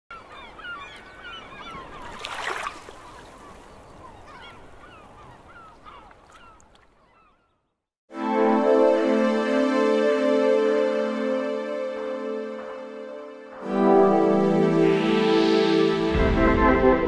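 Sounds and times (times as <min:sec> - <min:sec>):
music with sustained keyboard tones: 0:08.1 - 0:17.0.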